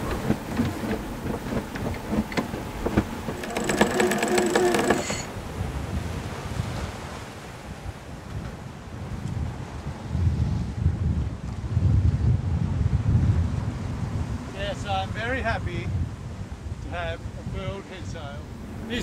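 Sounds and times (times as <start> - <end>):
winch pawls clicking: 0.0 - 5.3
rushing sea water: 0.0 - 11.7, 13.0 - 19.0
wind: 0.0 - 19.0.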